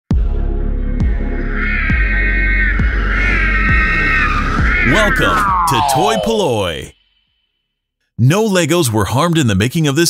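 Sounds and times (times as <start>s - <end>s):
electronic music with deep beat: 0.1s - 6.7s
low drone: 0.5s - 6.9s
higher wavering tone: 0.8s - 6.9s.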